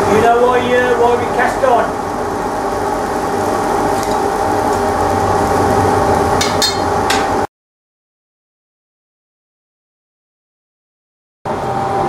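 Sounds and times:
steady hum: 0:00.0 - 0:07.5, 0:11.5 - 0:12.0
blowpipe rattling on iron arms: 0:06.4 - 0:07.2.

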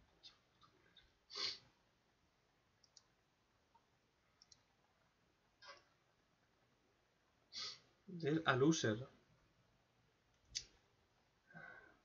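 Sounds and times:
computer mouse clicks: 0:02.8 - 0:03.1, 0:04.4 - 0:04.7.

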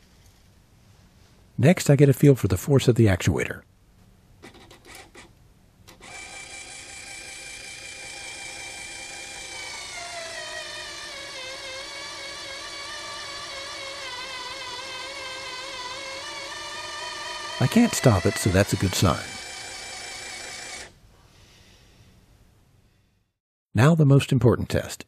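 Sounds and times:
linear actuator motor whining: 0:05.9 - 0:21.0.

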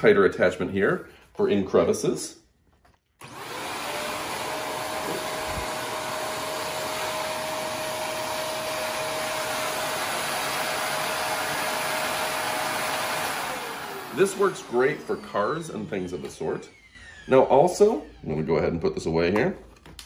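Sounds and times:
vacuum cleaner running: 0:03.2 - 0:18.4.

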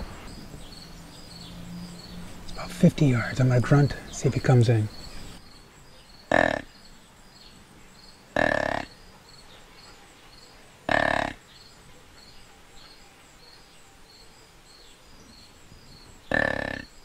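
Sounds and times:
insects chirping: 0:00.0 - 0:17.0
deer grunt call: 0:06.3 - 0:06.7, 0:16.3 - 0:16.9.

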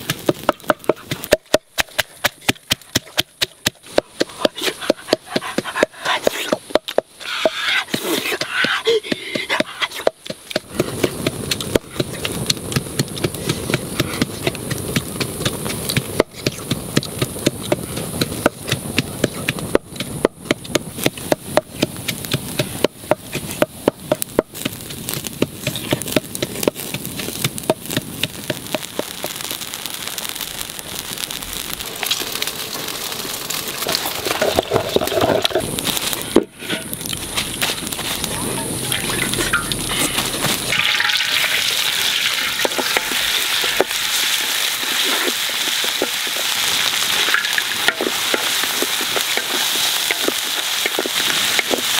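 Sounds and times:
sharp snaps and pops: 0:00.0 - 0:51.9
steady hiss: 0:00.0 - 0:51.9
wood fire crackling: 0:00.0 - 0:51.9.

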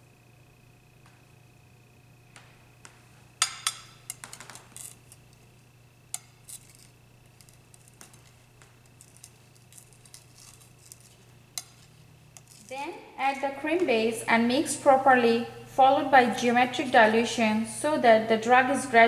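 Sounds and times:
steady low hum: 0:00.0 - 0:19.0
spatula scraping on glass: 0:06.1 - 0:12.7.

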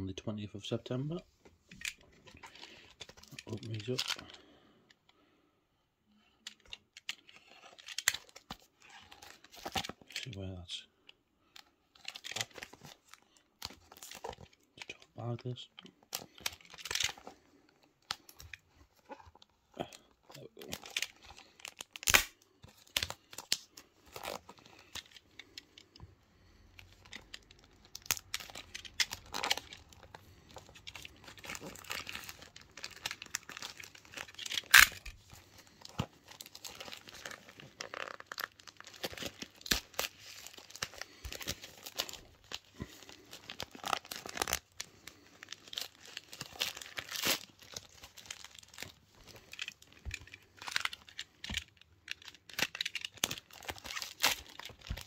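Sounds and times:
plastic bag crinkling and tearing: 0:11.9 - 0:55.0.

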